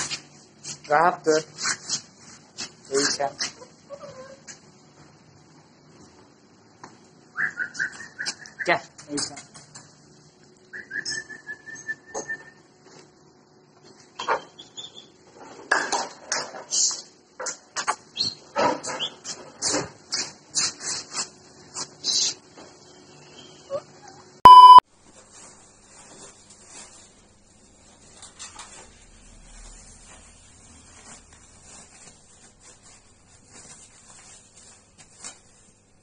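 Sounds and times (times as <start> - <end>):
loud single-tone beep: 24.4 - 24.8
faint rustling: 25.1 - 35.9.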